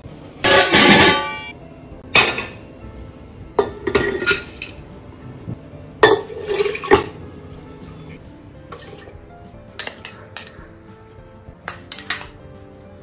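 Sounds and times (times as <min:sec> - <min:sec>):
metal ring: 0:00.4 - 0:01.5
cookware knocks and clinks: 0:03.6 - 0:04.8, 0:06.0 - 0:07.1, 0:09.8 - 0:10.6, 0:11.6 - 0:12.4.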